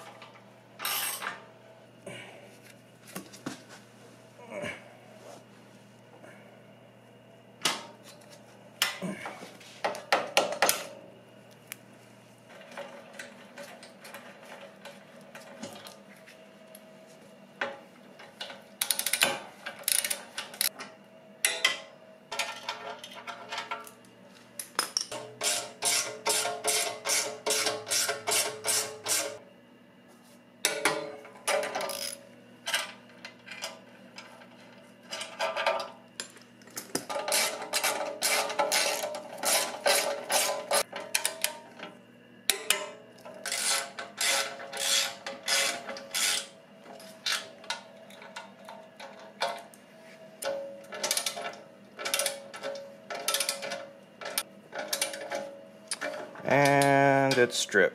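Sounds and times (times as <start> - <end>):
hand ratchet clicking: 19.8 - 20.7.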